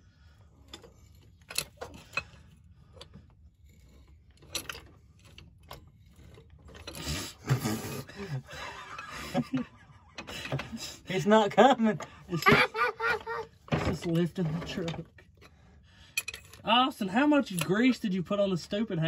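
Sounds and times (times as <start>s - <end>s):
hydraulic floor jack being pumped: 1.1s - 11.1s.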